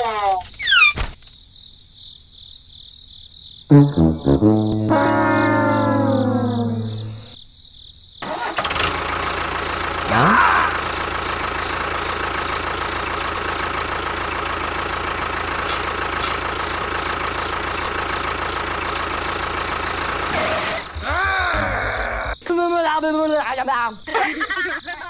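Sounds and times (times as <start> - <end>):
brief rising tone: 3.7 - 7.4.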